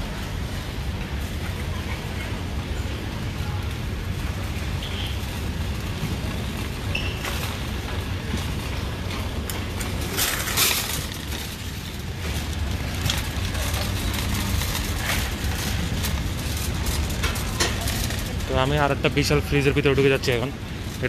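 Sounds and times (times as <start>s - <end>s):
shopping cart wheels rumbling: 0.0s - 21.0s
wire basket rattling: 8.4s - 21.0s.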